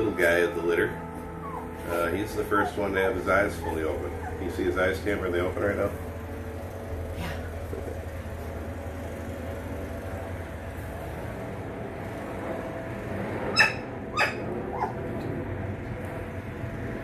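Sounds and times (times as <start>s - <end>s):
steady low hum: 0.0s - 17.0s
puppy squeaking: 1.4s - 5.0s, 13.6s - 15.0s.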